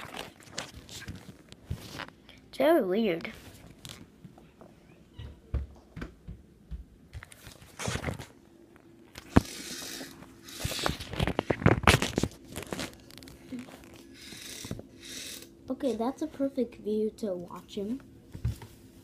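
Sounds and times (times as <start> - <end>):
phone handling rustling and scraping: 9.1 - 14.9.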